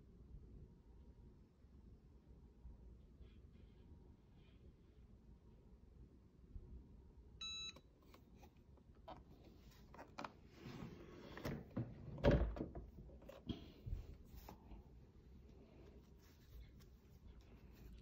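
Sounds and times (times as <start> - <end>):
short electronic beep: 7.4 - 7.8
rustling and handling noises: 8.0 - 18.0.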